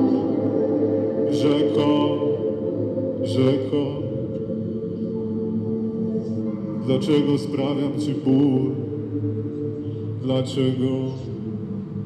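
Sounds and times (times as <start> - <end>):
electronic drone of low tones: 0.0 - 12.0.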